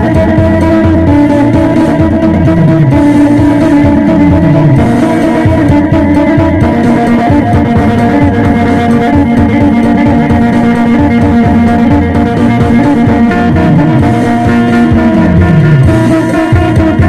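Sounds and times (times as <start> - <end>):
amplified lute plucked melody: 0.0 - 17.0.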